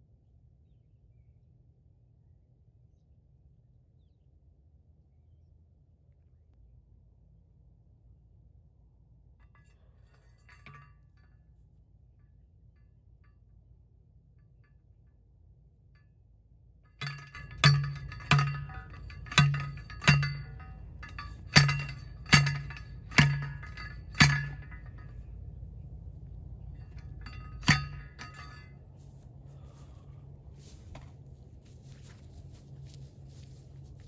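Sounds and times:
post driver clanking blows: 17.0s - 25.3s, 26.6s - 28.8s.

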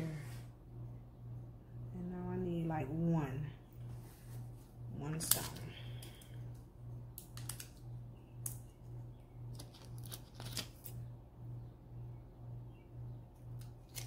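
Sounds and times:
pulsing low hum: 0.0s - 7.2s.

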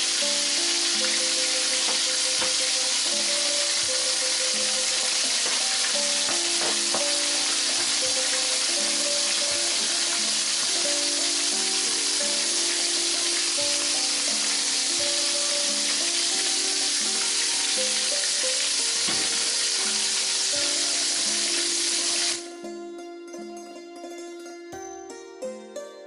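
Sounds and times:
fish deep-frying in oil: 0.0s - 22.5s
soft background music: 0.0s - 26.0s.

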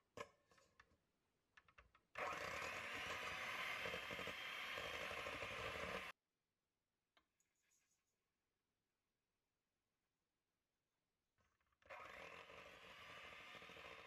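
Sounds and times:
electric hand mixer whipping: 2.2s - 6.1s.

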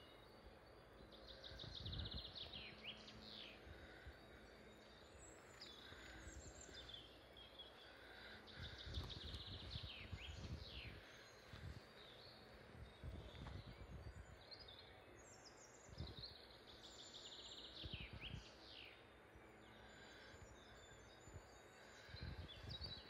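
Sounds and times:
birds singing: 0.0s - 23.0s.

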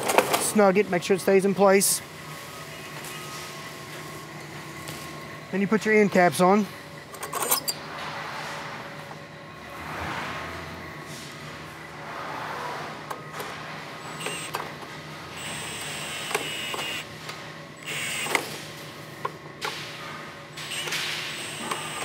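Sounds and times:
cordless drill motor whine: 14.1s - 14.6s, 15.4s - 17.1s, 17.8s - 18.5s, 20.7s - 22.0s.

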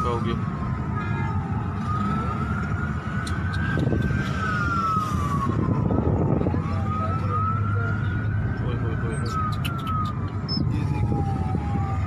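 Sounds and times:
emergency siren wailing: 0.0s - 12.0s
low rumble of traffic: 0.0s - 12.0s.

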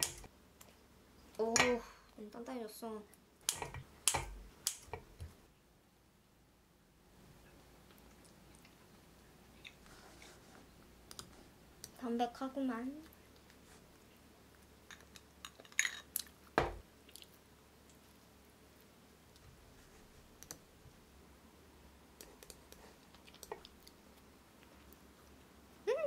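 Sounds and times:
soft chewing: 7.2s - 12.0s, 13.0s - 21.0s, 22.1s - 25.7s.

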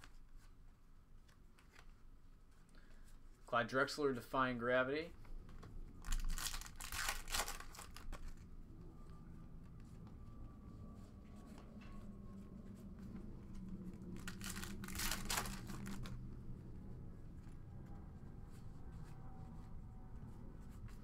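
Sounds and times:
foil wrapper tearing: 6.0s - 8.3s, 14.2s - 16.2s.

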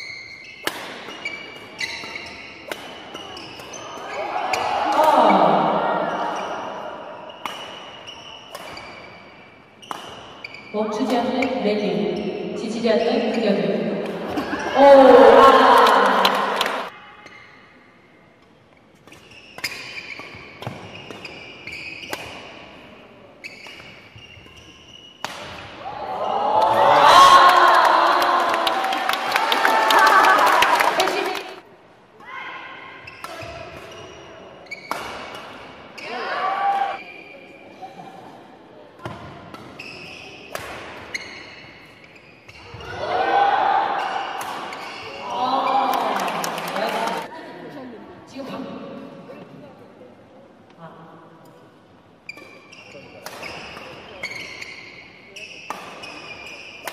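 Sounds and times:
shoes squeaking on floor: 0.0s - 4.3s, 6.1s - 12.6s, 19.1s - 22.6s, 23.4s - 25.3s, 33.0s - 35.4s, 39.6s - 43.0s, 44.1s - 45.2s, 52.2s - 56.9s
racket striking shuttlecock: 0.6s - 3.8s, 9.8s - 10.3s, 22.0s - 22.5s, 34.8s - 35.5s, 55.7s - 56.9s
crowd cheering and shouting: 14.8s - 16.9s, 25.8s - 31.6s.

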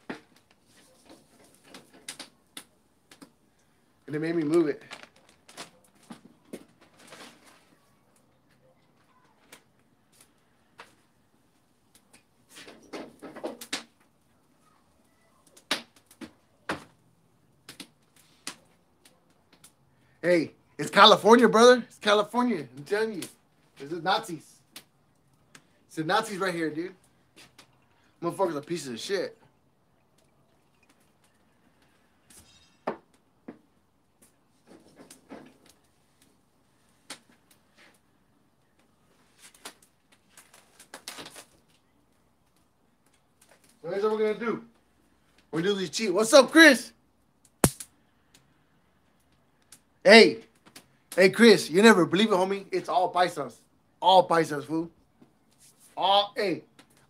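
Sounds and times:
burning wood crackling: 0.0s - 57.0s
knocks and clatter at grill: 12.6s - 14.0s, 34.6s - 35.7s.

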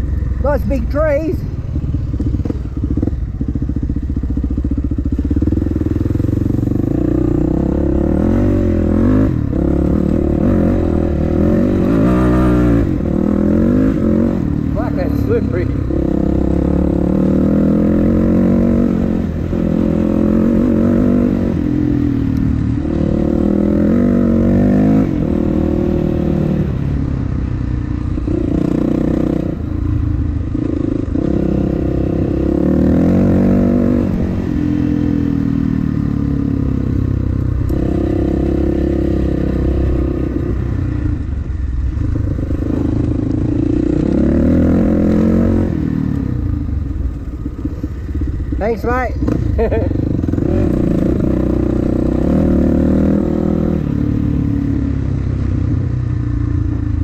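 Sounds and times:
dirt bike engine revving: 42.6s - 46.3s, 48.6s - 54.1s.

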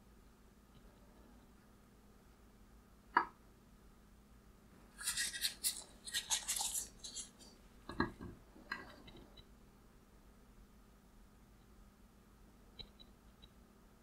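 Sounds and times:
scratchy rubbing and scraping: 5.0s - 7.6s.

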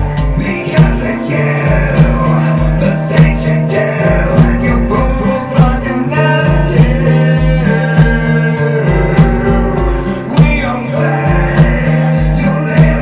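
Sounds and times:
goth rock song: 0.0s - 13.0s.

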